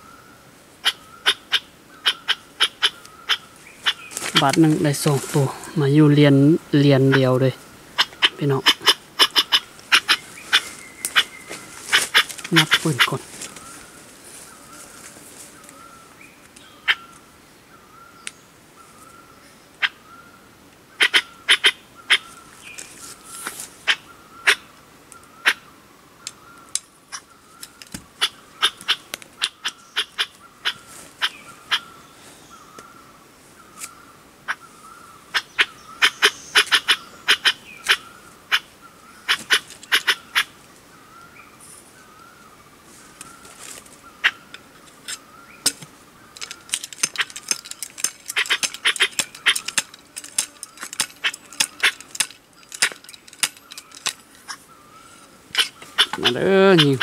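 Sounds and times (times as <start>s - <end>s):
sharp clicks: 45.1s - 54.2s.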